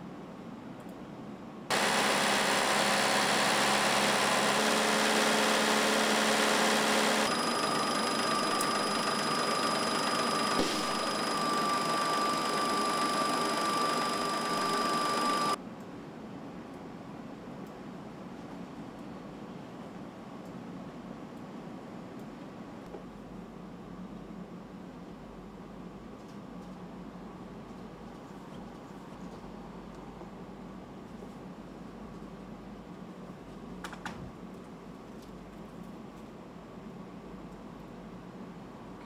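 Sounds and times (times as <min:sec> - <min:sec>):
engine running on dynamometer: 0:01.7 - 0:15.6
steady high whine: 0:01.7 - 0:15.6.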